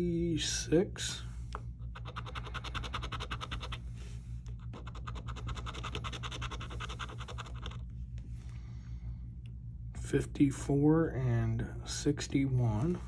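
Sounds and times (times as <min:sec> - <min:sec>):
lottery ticket being scratched: 0:01.9 - 0:03.8, 0:04.6 - 0:07.9.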